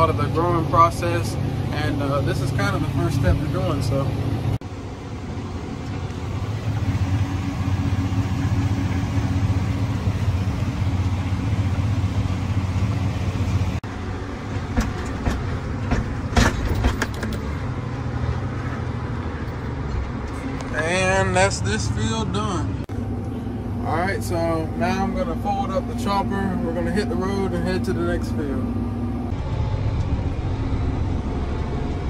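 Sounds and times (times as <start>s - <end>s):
tractor engine running under load: 0.0s - 32.0s
sharp knocks: 14.6s - 17.4s.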